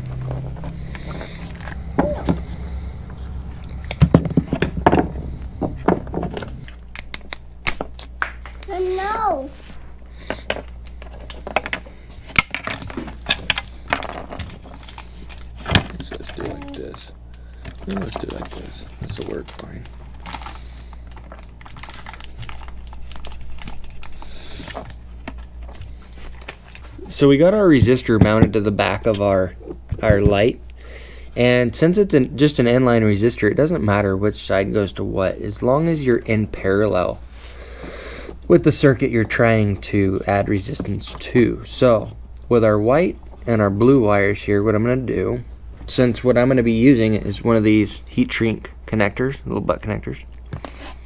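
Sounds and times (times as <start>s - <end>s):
low steady hum: 0.0s - 51.0s
tape clicks and rustles: 6.2s - 9.0s, 10.2s - 27.0s
plastic crinkling: 12.7s - 27.2s.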